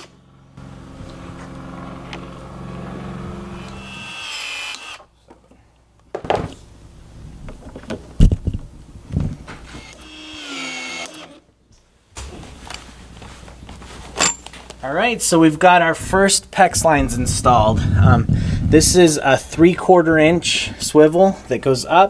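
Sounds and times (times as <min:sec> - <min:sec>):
pipe expansion tool running: 0:00.0 - 0:05.1, 0:09.6 - 0:11.4.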